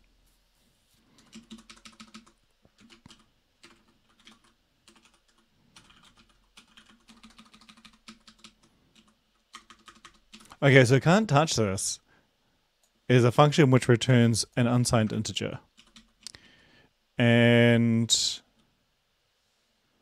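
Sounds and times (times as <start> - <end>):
faint keyboard typing: 1.0 - 10.6, 15.0 - 16.4.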